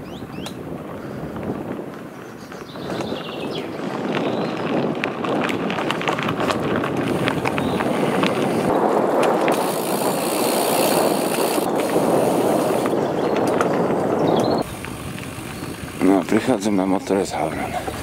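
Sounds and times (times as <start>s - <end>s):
bike tyres rolling on gravel: 0.0s - 18.0s
clicks of grit and bike parts: 5.0s - 16.4s.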